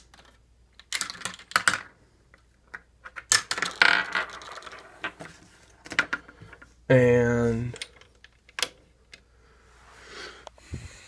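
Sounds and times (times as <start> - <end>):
plastic game pieces clattering: 0.1 - 1.9, 3.1 - 5.2.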